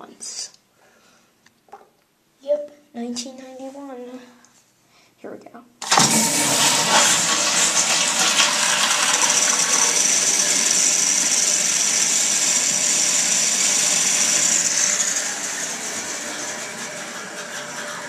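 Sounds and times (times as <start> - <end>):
toilet flushing with hiss: 5.8 - 18.0.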